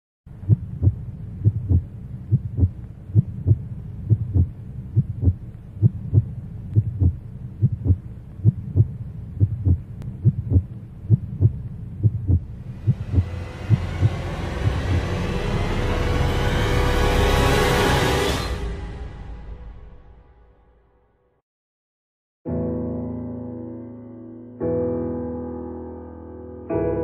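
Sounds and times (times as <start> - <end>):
heartbeat thumps: 0.3 - 15.2
low drone: 9.1 - 20.4
rising wash of sound: 12.6 - 17.2.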